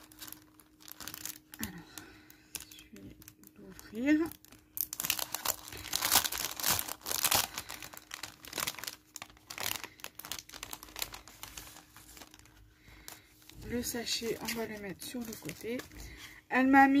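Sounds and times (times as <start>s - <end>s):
plastic sachet crinkling: 0.0s - 16.3s
paper rustling: 5.0s - 16.3s.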